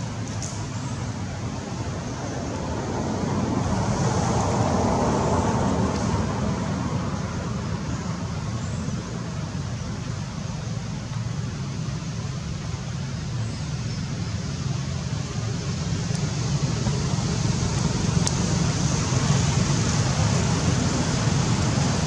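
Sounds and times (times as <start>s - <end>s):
distant road traffic: 0.0s - 22.0s
vehicle passing: 1.7s - 7.9s, 15.4s - 22.0s.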